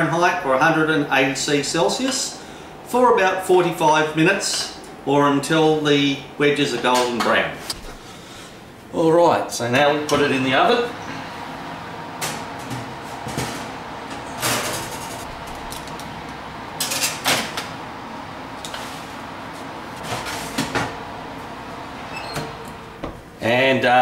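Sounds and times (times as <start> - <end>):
faint steady hum: 0.0 - 24.0
metal tray scraping on rack: 20.0 - 20.9.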